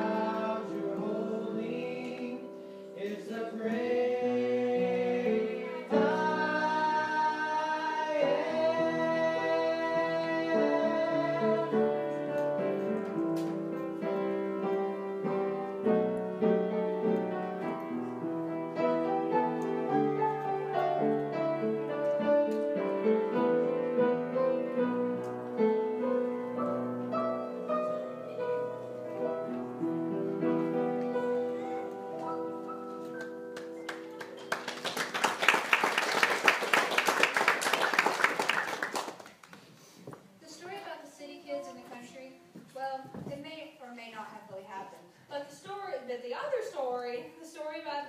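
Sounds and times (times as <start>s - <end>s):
piano music: 0.0s - 36.0s.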